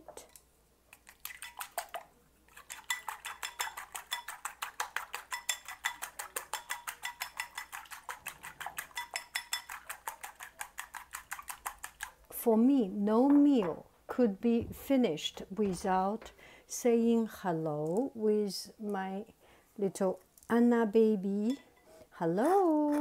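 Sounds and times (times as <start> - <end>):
chopsticks beating eggs in bowl: 0.9 - 12.4.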